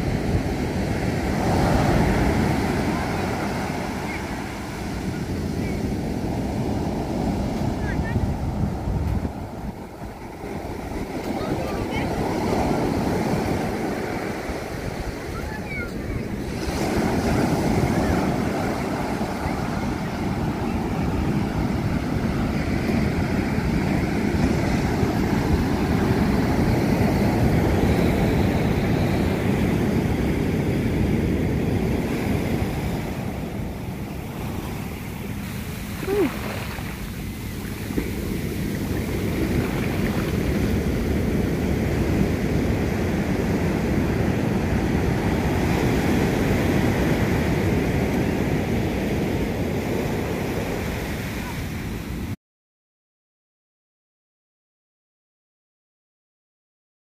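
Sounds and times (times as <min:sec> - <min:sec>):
ocean surf breaking: 0:00.0 - 0:52.4
wind rumbling on microphone: 0:00.0 - 0:52.4.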